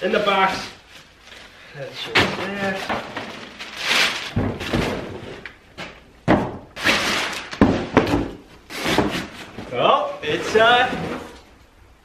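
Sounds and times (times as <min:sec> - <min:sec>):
packing paper rustling: 0:00.8 - 0:05.2
cardboard thumps: 0:04.3 - 0:05.2, 0:06.2 - 0:06.7, 0:07.6 - 0:09.4.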